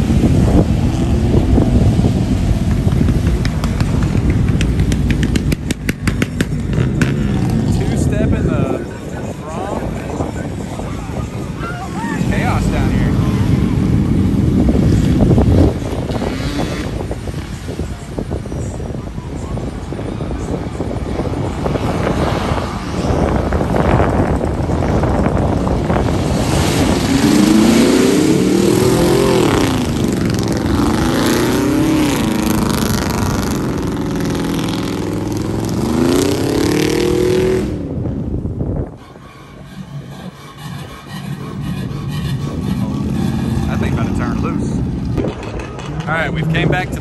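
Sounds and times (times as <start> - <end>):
truck engine revving: 9.9 - 17.3, 21.1 - 47.0
tyres churning in mud: 39.0 - 47.0.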